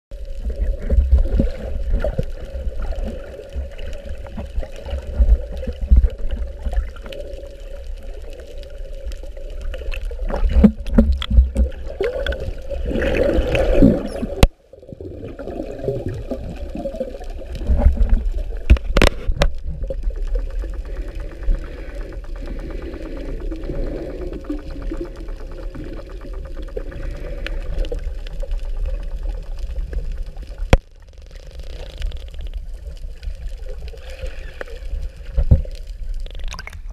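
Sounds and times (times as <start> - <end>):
low rumble: 16.0 - 34.0.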